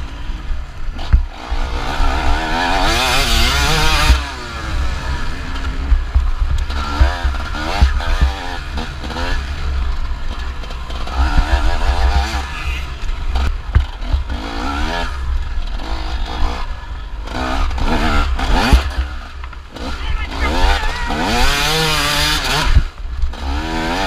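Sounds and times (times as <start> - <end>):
two-stroke motorcycle engine revving: 0.0 - 24.0
sharp knocks from bike: 13.6 - 14.3.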